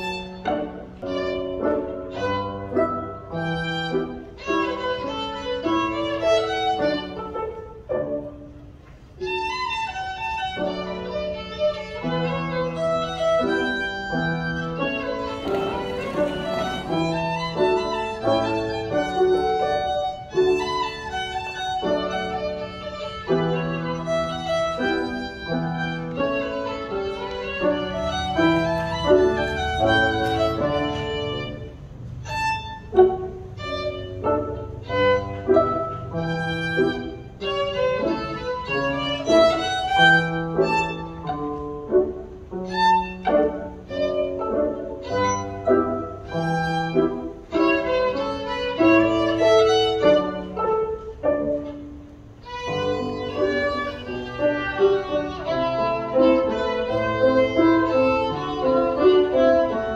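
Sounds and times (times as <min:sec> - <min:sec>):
piano accompaniment: 0:00.0 - 0:59.9
violin playing quick tune: 0:09.2 - 0:41.3, 0:52.4 - 0:59.7.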